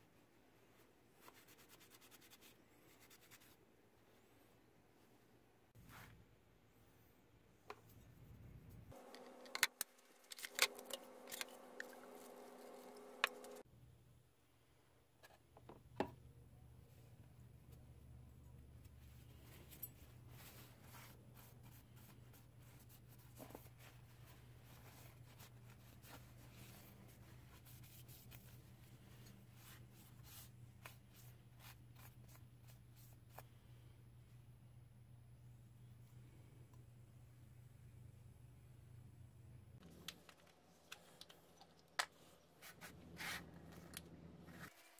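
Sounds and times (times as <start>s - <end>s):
faint steady hum: 2.7s - 44.9s
can being handled: 9.1s - 13.6s.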